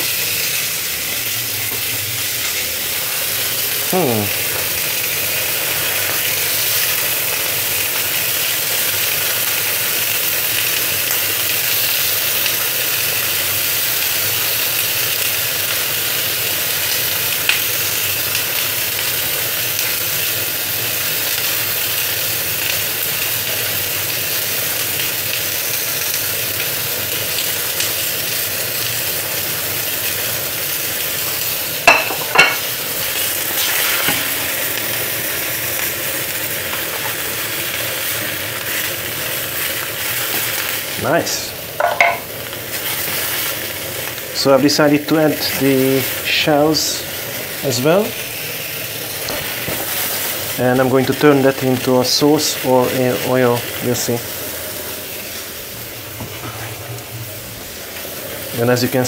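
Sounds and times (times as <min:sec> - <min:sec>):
food sizzling in frying pan: 0:00.0 - 0:59.0
tongs clinking on pan: 0:31.9 - 0:32.7, 0:41.8 - 0:42.3.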